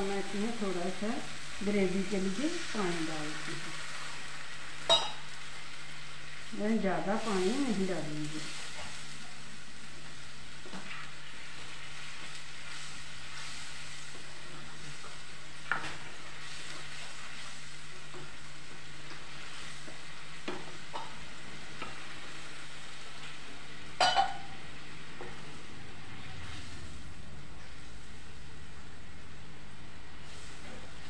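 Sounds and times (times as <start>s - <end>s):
gravy sizzling in a pan: 0.0s - 31.0s
spatula stirring and scraping: 10.6s - 22.3s.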